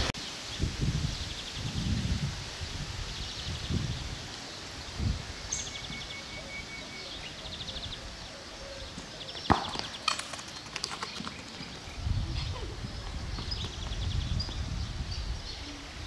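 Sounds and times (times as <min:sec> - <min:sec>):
football kicked on concrete: 0:09.5 - 0:10.3.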